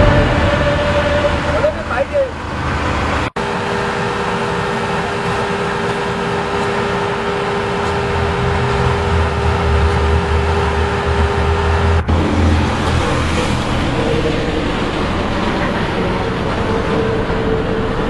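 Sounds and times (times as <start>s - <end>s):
low rumble: 0.0s - 3.3s, 7.4s - 18.0s
constant hum: 0.0s - 18.0s
paver engine and machinery: 0.0s - 18.0s.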